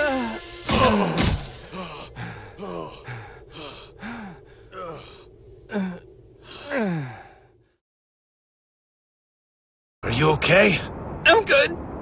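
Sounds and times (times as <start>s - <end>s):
panting and gasping: 0.0s - 7.4s.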